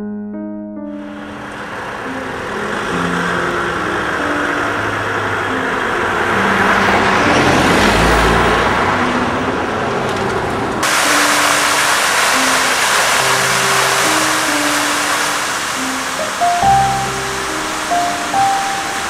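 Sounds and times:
piano music: 0.0s - 19.0s
car passing by: 1.0s - 19.0s
steady hiss: 10.8s - 19.0s.

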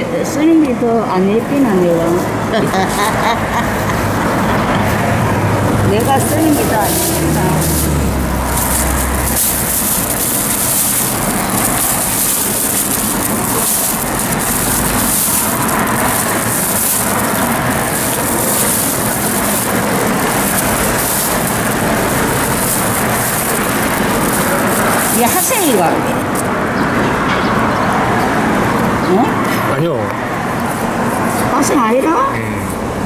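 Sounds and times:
plastic bag rustling: 2.1s - 26.5s.

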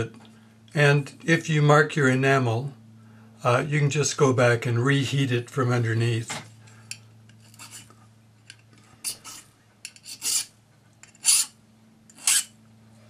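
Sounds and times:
hand file scraping metal: 7.3s - 7.9s, 9.0s - 12.6s.

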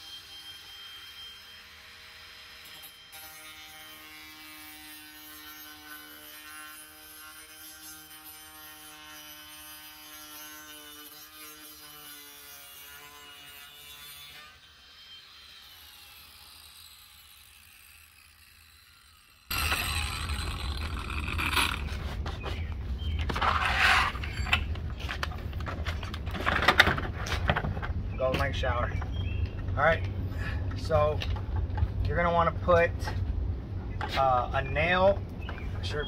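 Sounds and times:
angle grinder motor whining: 14.6s - 22.1s.

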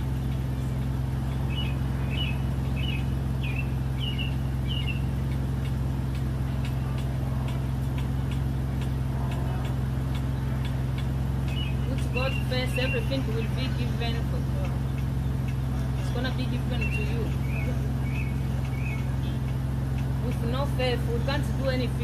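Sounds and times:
small bird chirping: 0.0s - 20.5s
car engine idling: 0.0s - 22.0s.

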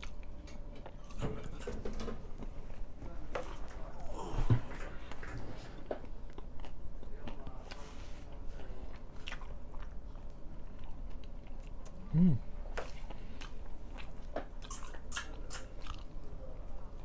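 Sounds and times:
person chewing bread: 0.0s - 1.6s, 2.4s - 17.0s
low voice: 12.0s - 12.5s.

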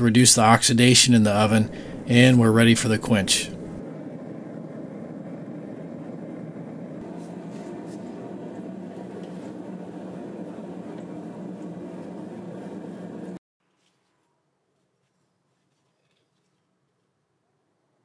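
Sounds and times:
gas forge burner rushing: 0.0s - 13.4s.

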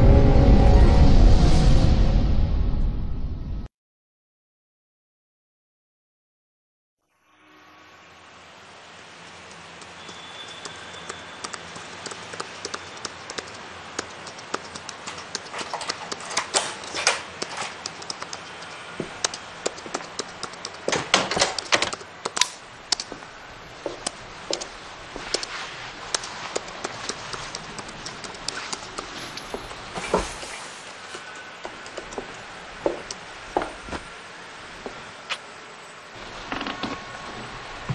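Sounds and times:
footsteps in a room: 9.6s - 22.2s, 22.9s - 35.5s.

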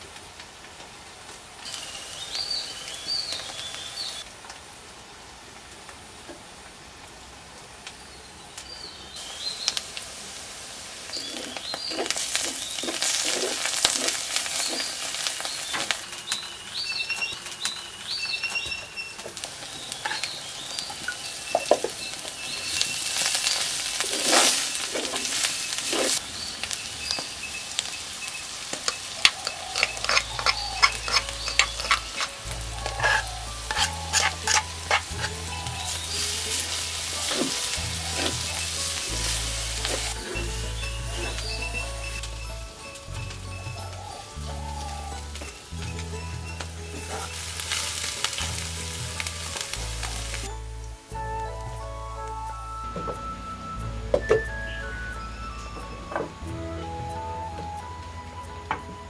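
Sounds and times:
onions sizzling in hot oil: 1.4s - 4.8s, 8.0s - 52.3s
birds chirping: 1.7s - 4.3s, 8.0s - 10.0s, 11.0s - 51.8s, 52.4s - 57.5s
spoon scraping pot: 29.2s - 41.7s.

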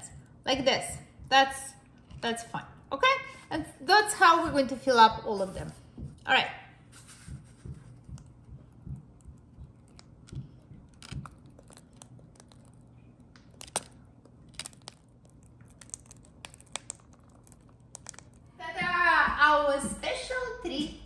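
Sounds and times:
plastic piping bag crinkling: 9.0s - 18.6s.

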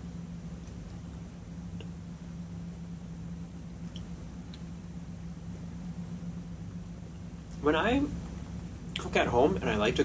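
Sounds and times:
steady low hum: 0.0s - 10.0s
faint small clicks: 3.8s - 4.7s.

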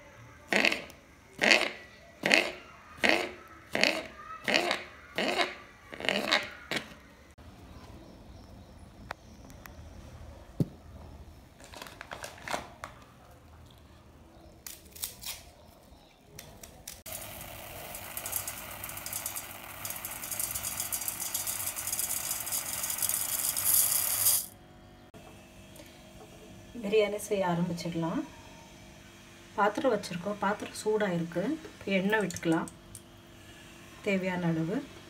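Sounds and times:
rice poured into metal bowl: 17.1s - 24.5s.

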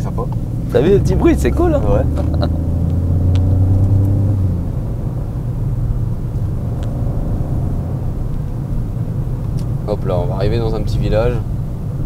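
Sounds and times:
car engine hum in cabin: 0.0s - 12.0s
road noise: 0.0s - 12.0s.

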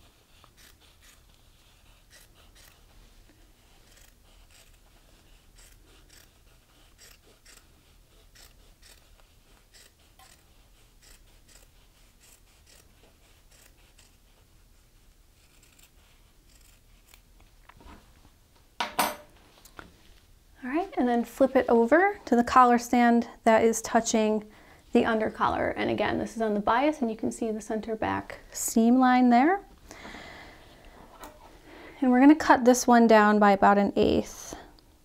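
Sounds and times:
scissors snipping fabric: 0.4s - 1.4s, 2.1s - 2.8s, 3.8s - 4.8s, 5.6s - 6.3s, 6.9s - 7.7s, 8.3s - 9.0s, 9.7s - 12.9s, 13.5s - 14.2s, 15.4s - 17.3s
scissors set down on wooden table: 18.8s - 19.3s.

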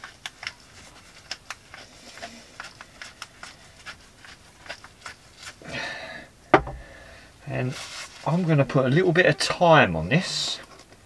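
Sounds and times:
loud knock: 6.6s - 6.9s.

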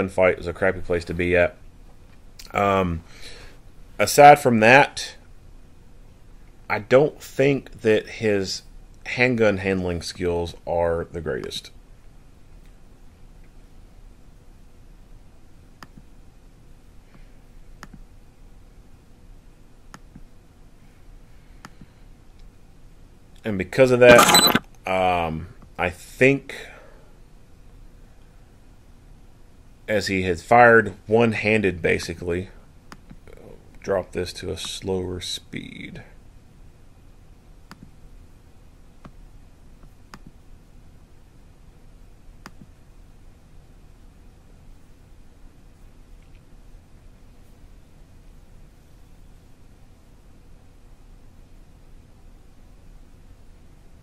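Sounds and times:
low steady hiss: 0.0s - 54.0s
low steady hum: 0.0s - 54.0s
computer mouse clicks: 17.8s - 18.0s, 24.1s - 24.6s, 37.7s - 38.0s, 39.8s - 40.4s, 42.4s - 42.7s.

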